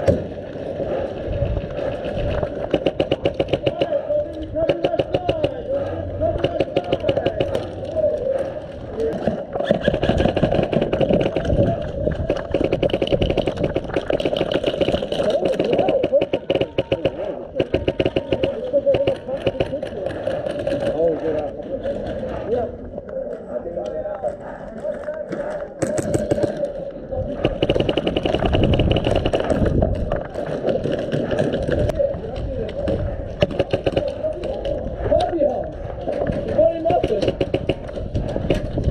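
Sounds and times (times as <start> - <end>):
airsoft gun rapid firing: 1.6 - 7.9, 9.1 - 21.2, 25.8 - 31.9, 32.8 - 35.2, 36.1 - 38.9.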